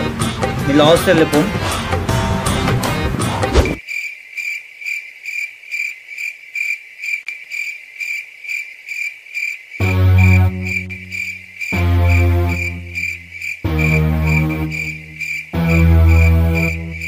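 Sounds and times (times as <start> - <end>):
cricket chirping: 3.8 - 17.0
low buzzing drone: 9.8 - 17.0.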